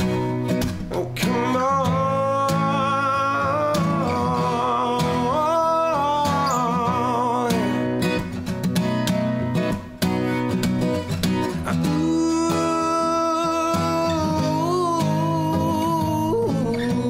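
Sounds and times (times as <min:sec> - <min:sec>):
acoustic guitar playing: 0:00.0 - 0:17.0.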